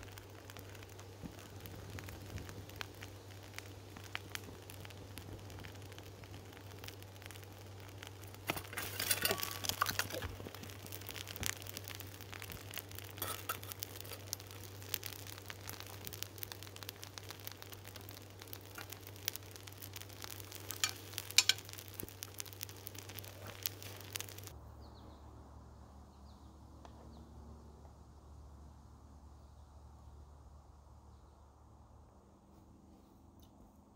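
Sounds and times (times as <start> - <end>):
molten metal sizzling and crackling: 0.0 - 24.6.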